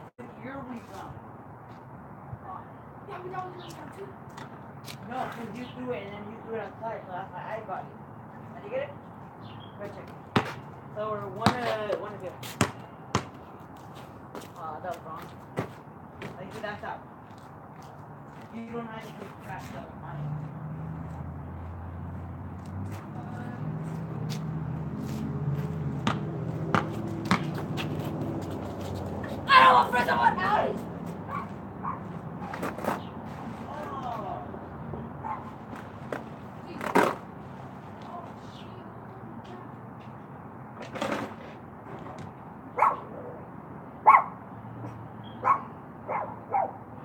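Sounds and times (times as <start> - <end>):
basketball bouncing on concrete: 10.3 - 13.5, 25.6 - 28.7
dog barking: 31.3 - 32.5, 35.2 - 35.5, 42.8 - 43.4, 44.0 - 44.4, 45.4 - 46.8.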